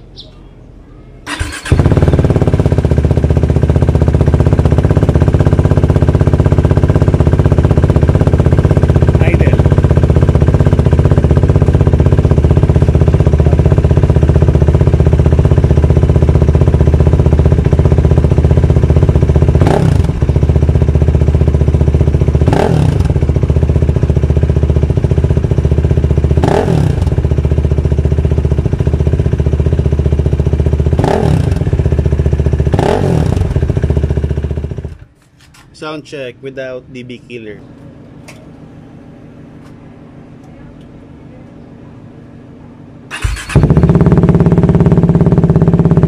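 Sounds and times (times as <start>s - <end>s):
motorcycle engine idling: 0.0s - 35.2s, 35.8s - 46.0s
engine revving: 1.3s - 24.0s, 24.9s - 27.6s, 29.7s - 35.0s, 43.0s - 46.0s.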